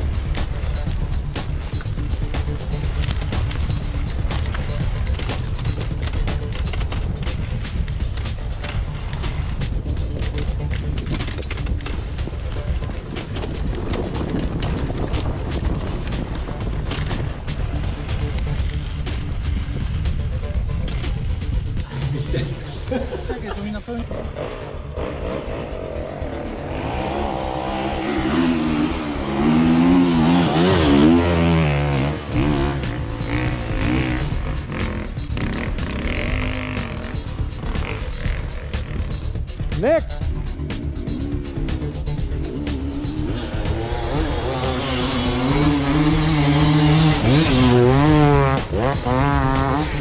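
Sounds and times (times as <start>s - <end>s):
dirt bike engine revving: 0.0s - 50.0s.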